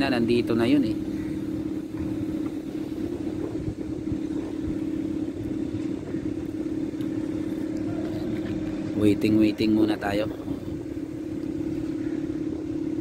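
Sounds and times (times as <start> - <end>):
low rumble: 0.0 - 13.0
steady machine hum: 0.0 - 13.0.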